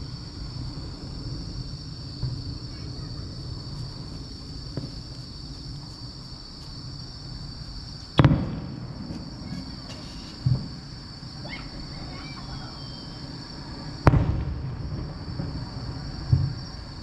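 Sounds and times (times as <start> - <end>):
loud firework boom: 0.0 - 5.1, 8.2 - 11.0, 14.0 - 16.8
distant firework thuds: 0.0 - 7.0, 8.1 - 12.2, 13.0 - 17.0
crickets chirping: 0.0 - 17.0.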